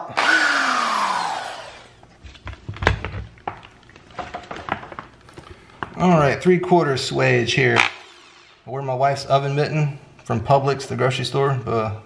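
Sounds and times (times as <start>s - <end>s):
power drill whine spinning down: 0.1s - 2.0s.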